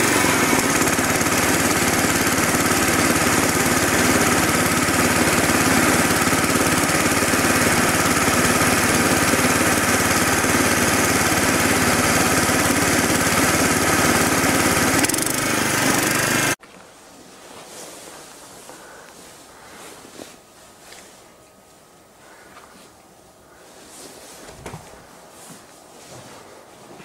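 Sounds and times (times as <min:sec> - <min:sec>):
small petrol engine running: 0:00.0 - 0:16.6.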